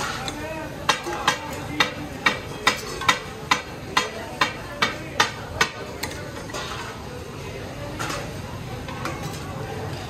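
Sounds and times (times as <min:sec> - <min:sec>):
steel spatulas clanging on griddle: 0:00.0 - 0:07.1.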